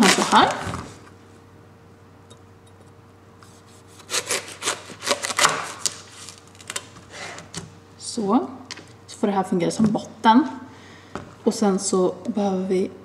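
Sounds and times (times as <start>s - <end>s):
knife crunching through watermelon: 3.8s - 7.5s.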